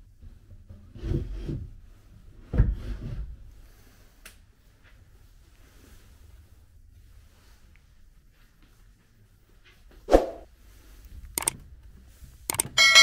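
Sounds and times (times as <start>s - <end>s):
small click: 11.4s - 11.6s.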